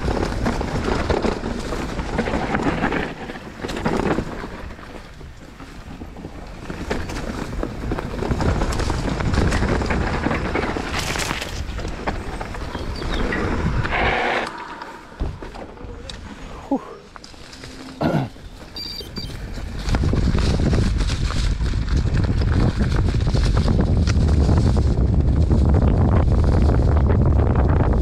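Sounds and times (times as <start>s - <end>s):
wind buffeting microphone: 0.0s - 16.7s, 18.3s - 28.0s
bike rattling over bumps: 0.0s - 28.0s
tyres rumbling on dirt: 0.0s - 28.0s.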